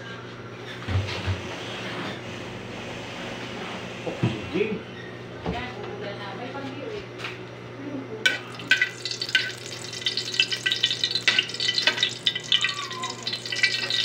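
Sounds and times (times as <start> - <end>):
oil sizzling in a wok: 8.3 - 14.0.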